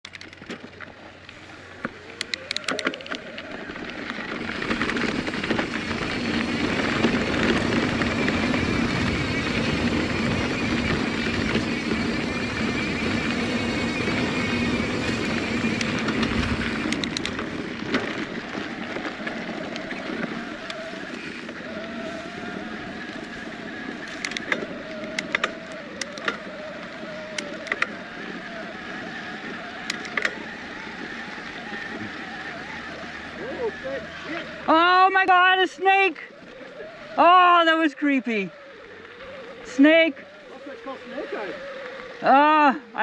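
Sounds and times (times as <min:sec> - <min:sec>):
sharp clicks: 0:00.0 - 0:05.6, 0:14.9 - 0:18.3, 0:24.1 - 0:28.0, 0:29.8 - 0:30.5
bike tyre and drivetrain noise: 0:00.0 - 0:43.0.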